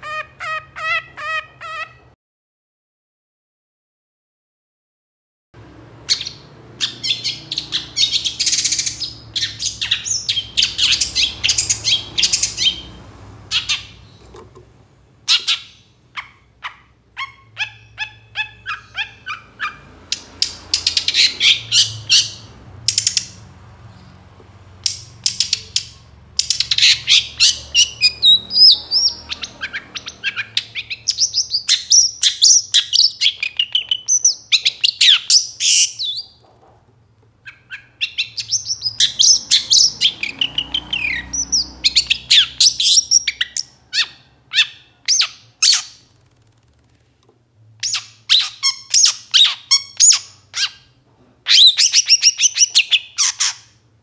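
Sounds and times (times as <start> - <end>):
bird singing chattering notes: 6.1 - 14.3, 15.3 - 24.1, 24.8 - 36.4.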